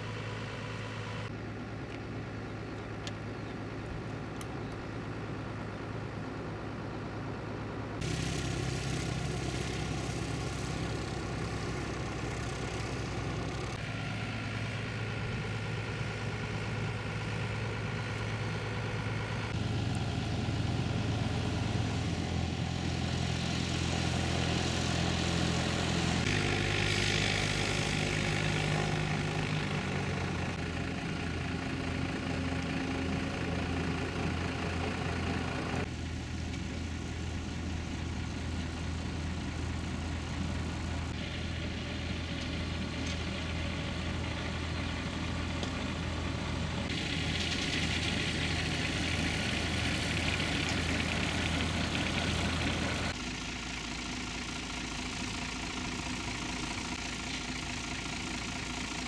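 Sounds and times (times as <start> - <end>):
light aircraft engines and propellers: 0.0 - 59.0.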